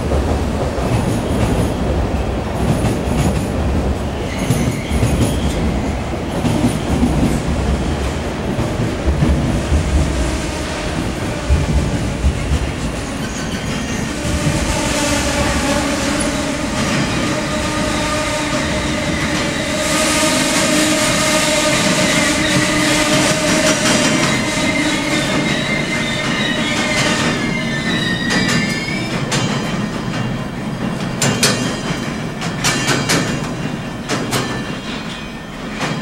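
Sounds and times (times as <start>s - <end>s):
train wheels rumbling on rails: 0.0s - 36.0s
high wavering wheel squeal: 23.7s - 29.2s
wheels clacking over rail joints: 28.0s - 36.0s.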